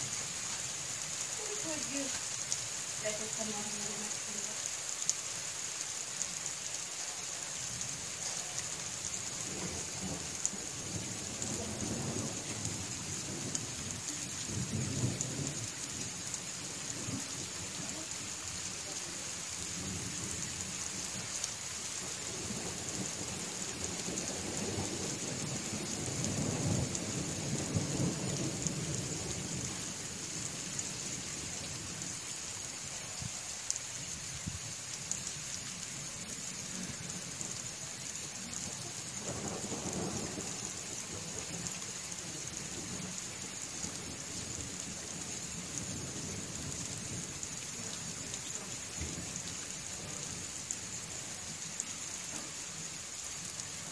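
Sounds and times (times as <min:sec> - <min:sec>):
steady rain: 0:00.0 - 0:53.9
rolling thunder: 0:09.4 - 0:16.1, 0:22.0 - 0:30.4, 0:38.7 - 0:43.2.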